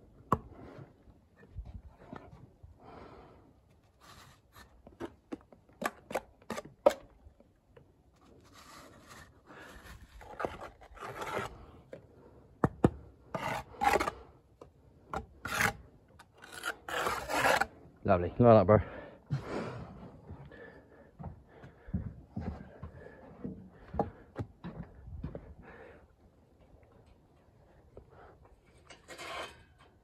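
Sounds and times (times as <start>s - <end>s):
trowel scraping mortar: 8.3s - 11.7s, 13.3s - 14.3s, 15.2s - 17.7s, 28.8s - 29.9s.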